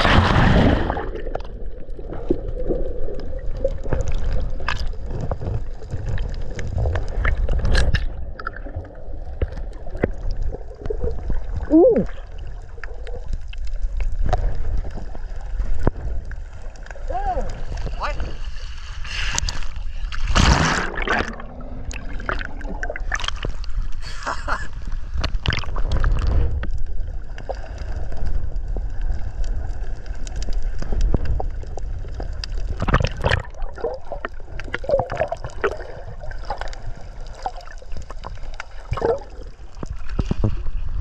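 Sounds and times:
loud splash of person jumping: 0.0s - 1.1s, 20.3s - 21.3s
sea water sloshing and bubbling: 0.0s - 41.0s.

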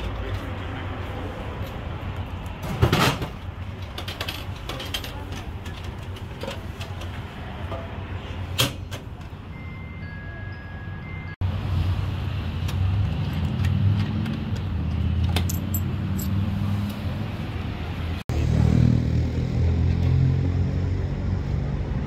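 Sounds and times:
bus engine and road rumble: 0.0s - 22.0s
light clinks and rattles: 15.2s - 16.4s.

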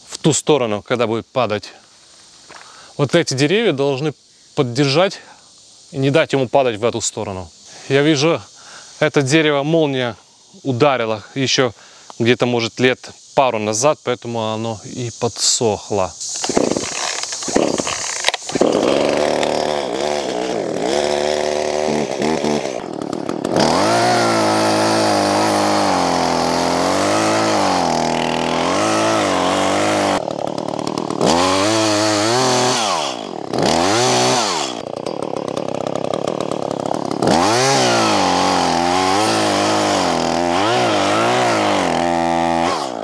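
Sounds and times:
chainsaw cutting tree trunk: 16.4s - 43.0s.

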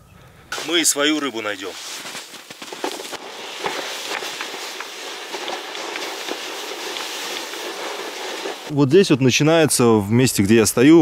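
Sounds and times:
footsteps crunching in snow: 0.6s - 8.7s
sled scraping over snowy ice: 0.6s - 8.7s
small knocks and crunches: 1.8s - 8.7s.

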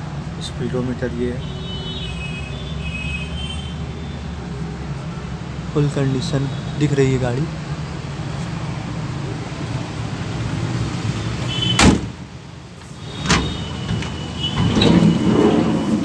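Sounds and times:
sliding van door slamming: 11.4s - 12.2s, 12.8s - 16.0s.

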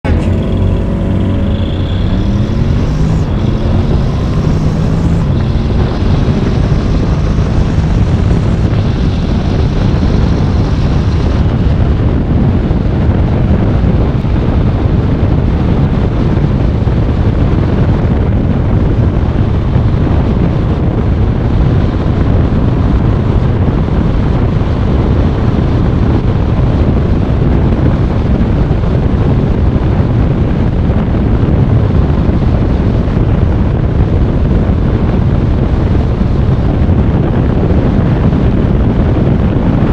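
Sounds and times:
scooter engine accelerating: 0.0s - 12.6s
wind noise on microphone: 0.0s - 39.9s.

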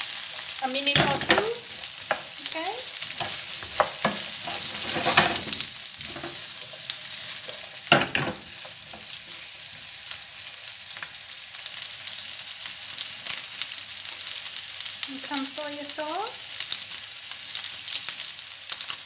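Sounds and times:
food sizzling in frying pan: 0.0s - 19.0s
wooden spoon striking pan: 3.2s - 6.4s.

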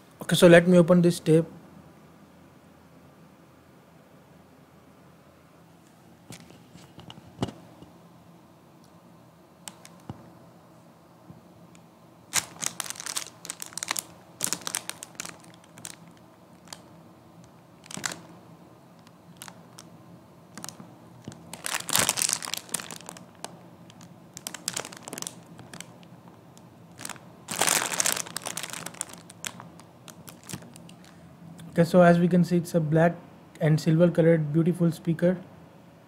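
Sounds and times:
plastic bag crinkling: 9.7s - 10.1s, 12.3s - 18.4s, 19.0s - 19.9s, 20.5s - 31.2s.

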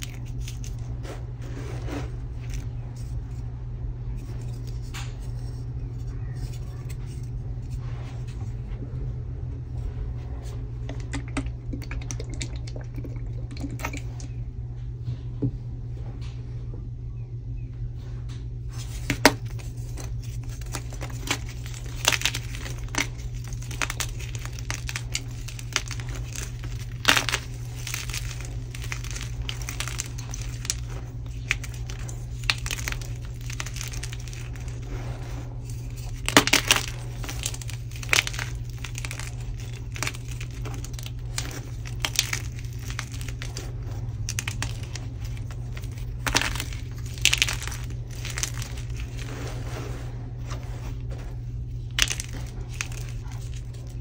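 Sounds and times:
chalk crunching and crumbling: 0.0s - 3.5s, 4.1s - 8.5s, 18.7s - 54.0s
low steady hum: 0.0s - 54.0s
chalk chunks cracking: 18.8s - 54.0s.

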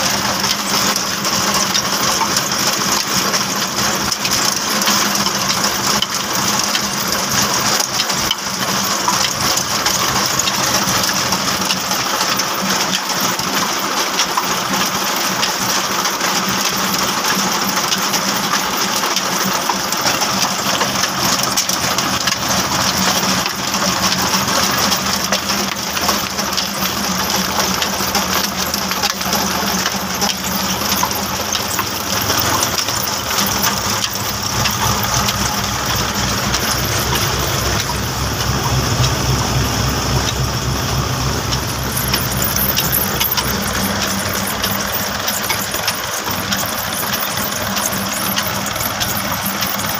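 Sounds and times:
mill belts clattering and rattling: 0.0s - 49.9s
diesel engine hum: 21.6s - 49.9s.

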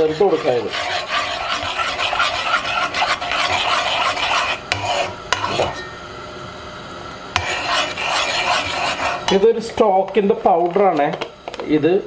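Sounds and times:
metal spoon stirring in a pot: 0.0s - 6.0s, 7.4s - 9.9s.

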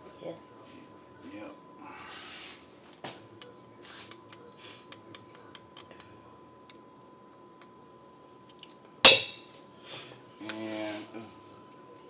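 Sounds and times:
spoon clacking bowl with ring: 9.1s - 9.5s.

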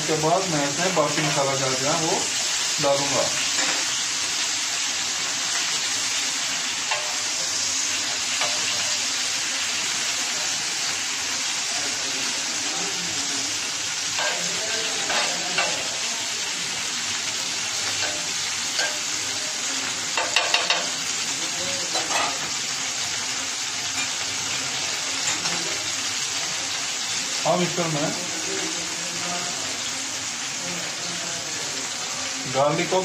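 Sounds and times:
onions sizzling in oil: 0.0s - 33.0s
spatula scraping griddle: 14.1s - 16.0s, 21.9s - 22.6s.

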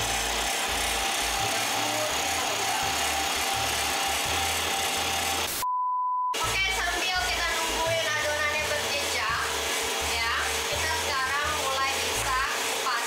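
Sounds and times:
background music: 0.0s - 5.6s, 6.4s - 13.0s
stand mixer running: 0.0s - 5.6s, 6.4s - 13.0s
short steady beep: 5.5s - 6.4s.

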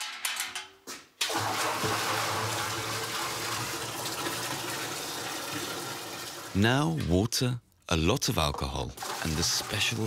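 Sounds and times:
liquid pouring into a pot: 1.3s - 6.6s, 9.0s - 10.0s.

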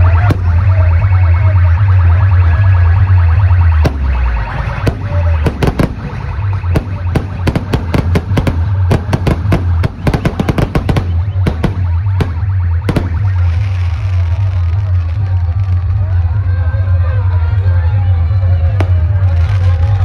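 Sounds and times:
fireworks cracks and bangs: 0.0s - 1.0s, 3.5s - 16.1s, 18.8s - 20.0s
music with heavy bass: 0.0s - 20.0s.

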